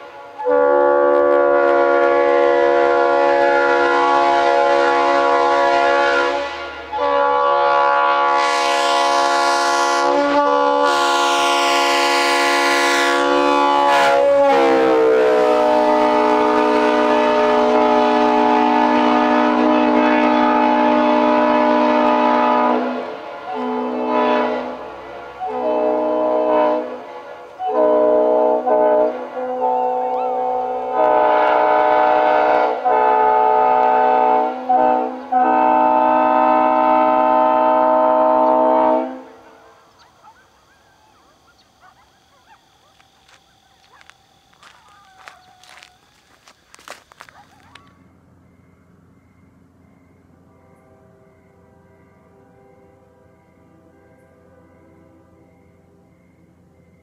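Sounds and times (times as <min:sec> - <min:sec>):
air horn blowing a chord: 0:00.2 - 0:39.7.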